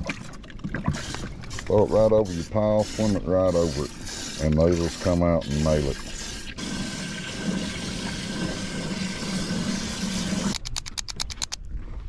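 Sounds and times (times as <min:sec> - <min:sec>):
rapid sharp clicks: 0:10.4 - 0:11.6.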